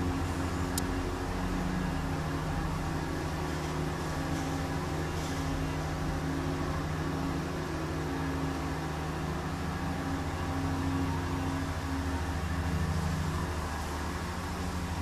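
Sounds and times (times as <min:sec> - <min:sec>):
low mechanical drone: 0:00.0 - 0:15.0.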